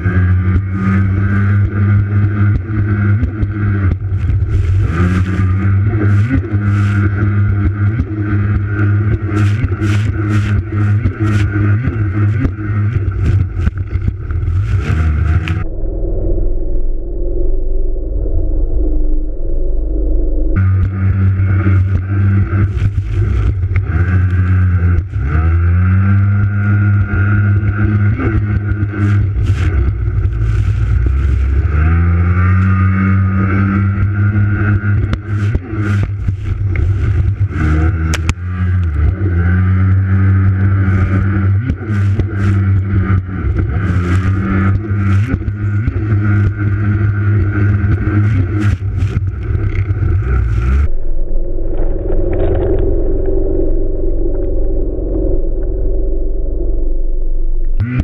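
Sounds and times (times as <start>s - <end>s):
jet ski engine revving: 0.0s - 15.6s, 20.6s - 50.9s.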